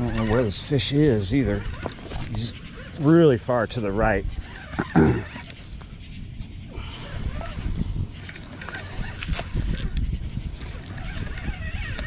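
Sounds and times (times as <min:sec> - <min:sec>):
crickets chirping: 0:00.0 - 0:12.0
fishing reel handling rumble: 0:00.0 - 0:12.0
frogs calling: 0:00.0 - 0:12.0.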